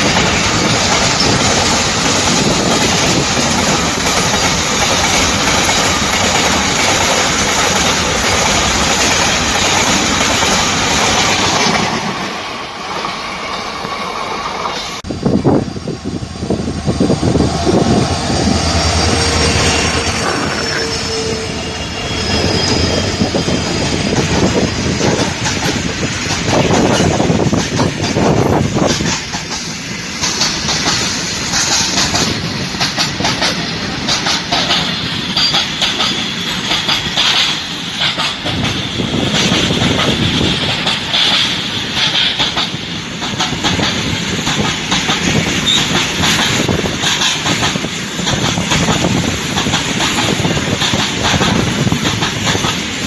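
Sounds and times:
freight train rumbling past: 0.0 - 53.0
faint high wheel squeal: 18.4 - 24.0, 45.6 - 46.0
wheels clattering over rail joints: 24.0 - 53.0.

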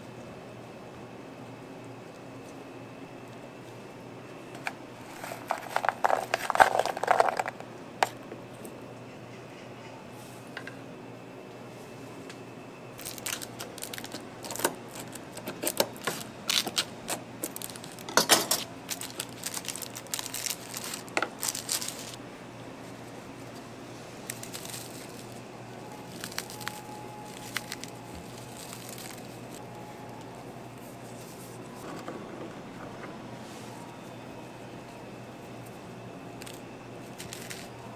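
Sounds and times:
biscuits snapping by hand: 13.0 - 18.3, 24.2 - 25.3, 26.0 - 29.6, 36.4 - 37.7.

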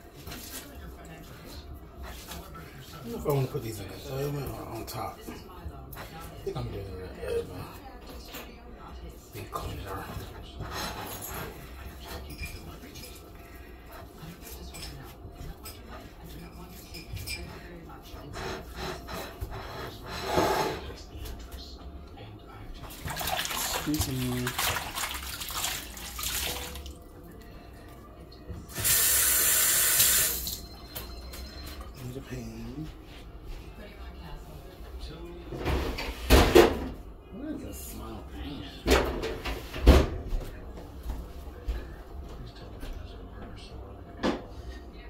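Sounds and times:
tap water running: 22.9 - 27.1, 28.7 - 30.6.

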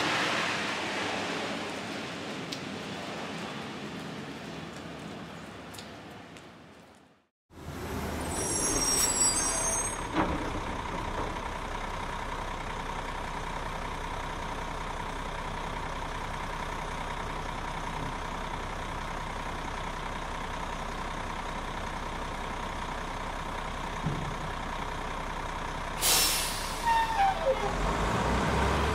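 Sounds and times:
high-pitched squeal: 8.0 - 10.2.

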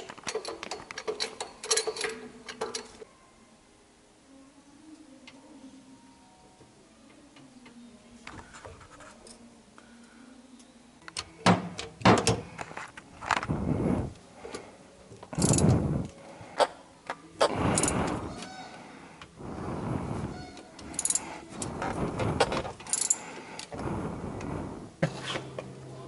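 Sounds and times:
ratchet wrench clicks: 15.4 - 15.7, 20.9 - 21.3, 22.9 - 23.2
ratchet rasping bursts: 15.4 - 15.8, 20.9 - 22.0.

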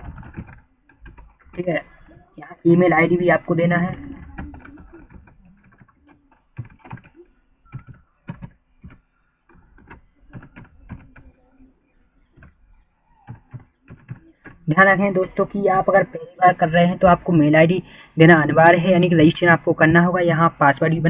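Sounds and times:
keyboard keystrokes clicking: 0.0 - 1.6, 3.9 - 11.3.

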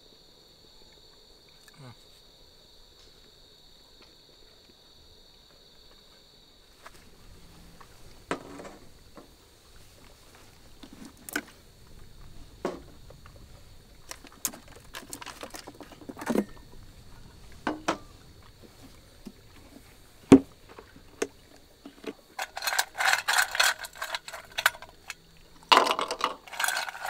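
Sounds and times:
cicadas buzzing: 0.0 - 27.0
objects clinking and knocking: 21.9 - 27.0.

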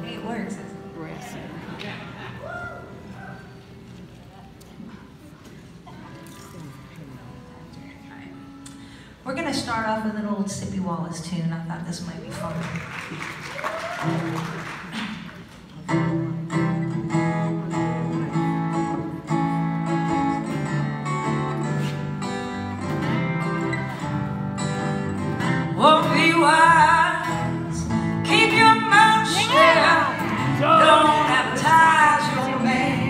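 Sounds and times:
acoustic guitars playing blues: 0.0 - 13.4, 14.0 - 33.0
woman singing: 25.7 - 33.0.

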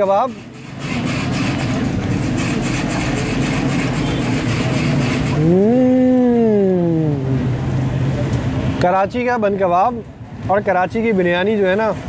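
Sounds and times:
street traffic noise: 0.0 - 12.0
rising and falling pitched tone: 5.3 - 8.2.

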